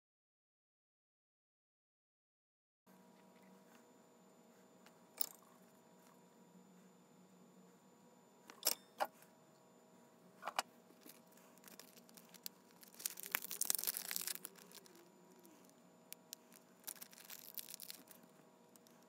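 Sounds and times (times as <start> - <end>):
faint crinkling and rustling: 10.4 - 19.0.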